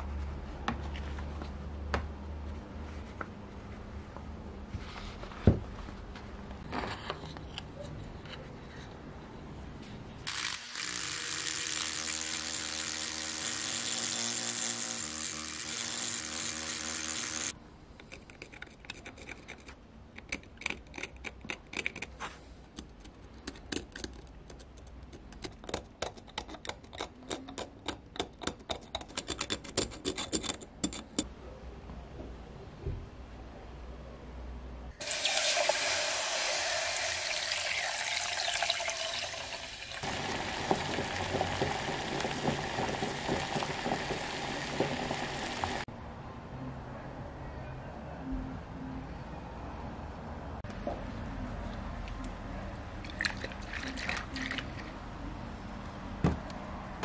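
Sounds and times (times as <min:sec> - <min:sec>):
rotary tool grinding metal: 0:10.3 - 0:17.5.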